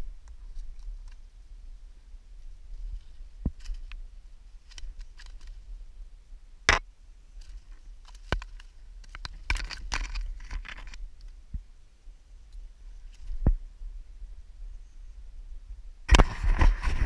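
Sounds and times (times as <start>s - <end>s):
rustling: 0.0s - 5.9s
handling knocks and clicks: 8.0s - 11.0s.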